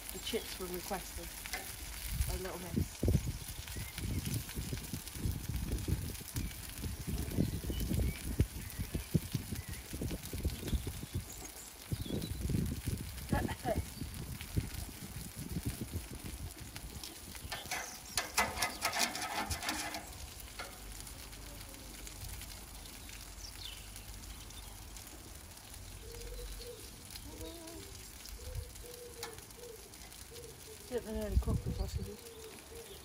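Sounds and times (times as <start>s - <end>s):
sausages sizzling on a grill: 0.0s - 33.0s
metal tongs clicking on grate: 17.5s - 20.8s.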